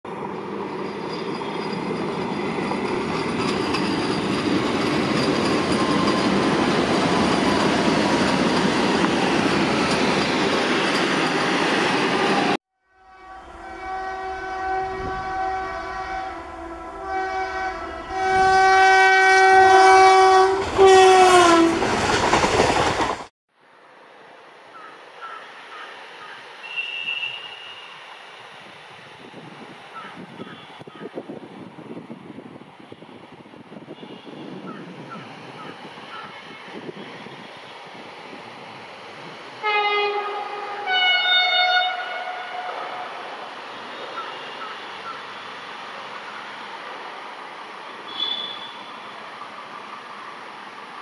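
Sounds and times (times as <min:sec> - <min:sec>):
train running on rails: 0:00.1 - 0:23.3, 0:24.2 - 0:51.0
train horn blasts: 0:12.8 - 0:21.9, 0:26.6 - 0:27.9, 0:33.9 - 0:34.6, 0:39.6 - 0:43.2, 0:48.1 - 0:49.1.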